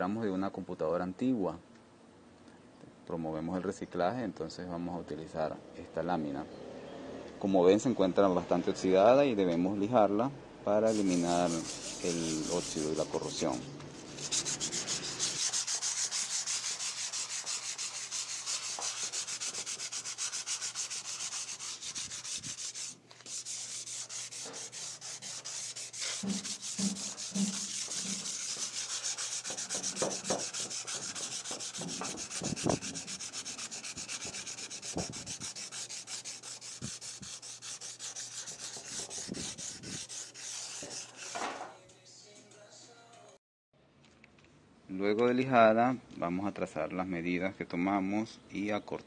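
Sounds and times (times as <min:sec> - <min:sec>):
sandpaper rubbing on rusty metal: 0:10.9 - 0:41.5.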